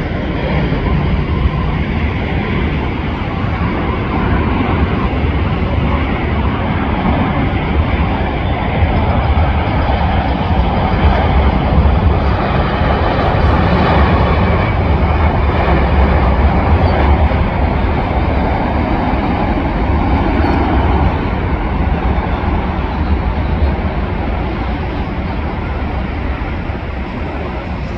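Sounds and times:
jet engines roaring: 0.0s - 27.9s.

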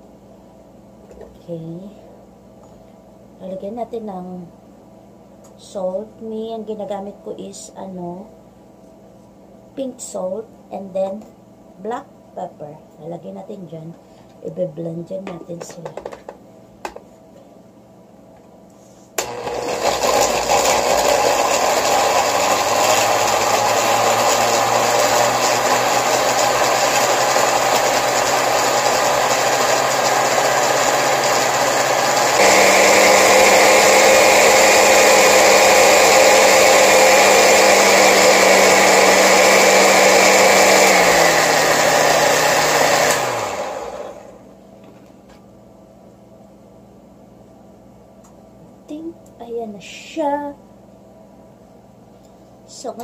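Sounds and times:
blender motor running: 19.2s - 44.4s.

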